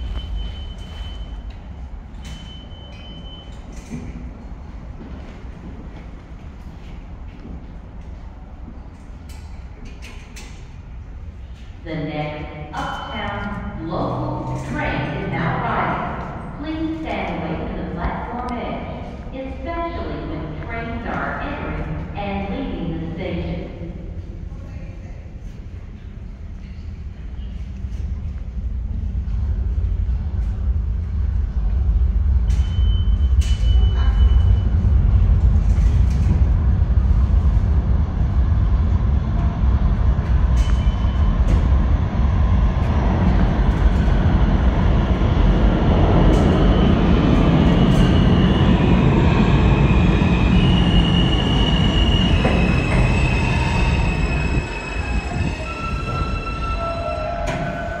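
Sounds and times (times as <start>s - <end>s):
train wheels rumbling on rail: 0.0s - 58.0s
high-pitched brake squeals: 50.6s - 58.0s.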